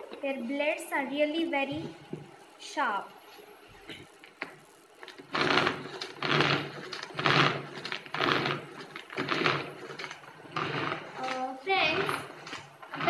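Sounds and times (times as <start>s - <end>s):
pull-cord chopper whirring: 4.6s - 13.0s.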